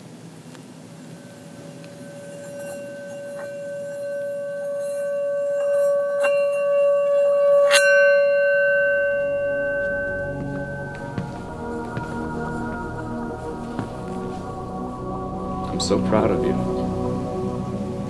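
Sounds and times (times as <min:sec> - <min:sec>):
bell-like ringing: 0:00.9 - 0:13.4.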